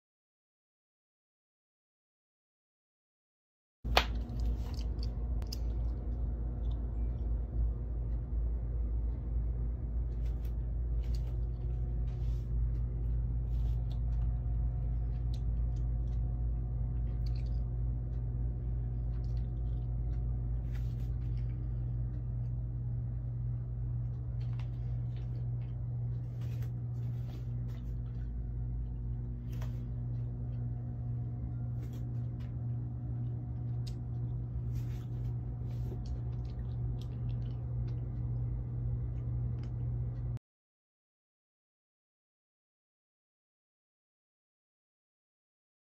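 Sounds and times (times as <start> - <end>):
low room hum: 3.9 - 40.4.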